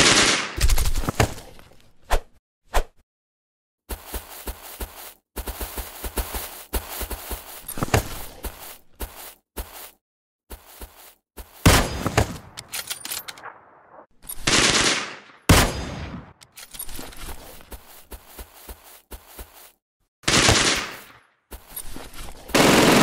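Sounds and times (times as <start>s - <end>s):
single gunshots: 11.6s - 12.6s, 13.4s - 16.4s, 20.3s - 21.2s
automatic gunfire: 14.4s - 16.2s, 20.3s - 21.0s, 22.6s - 23.0s.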